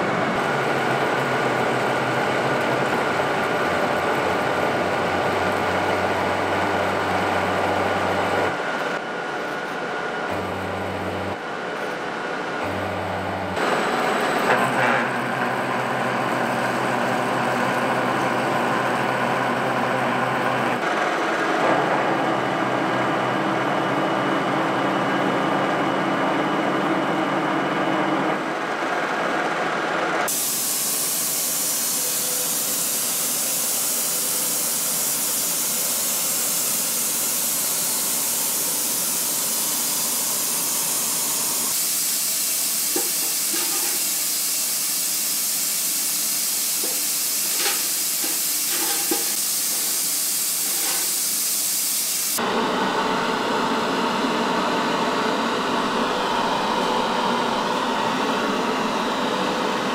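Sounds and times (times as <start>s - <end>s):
drill cutting steel hiss: 30.3s - 52.4s.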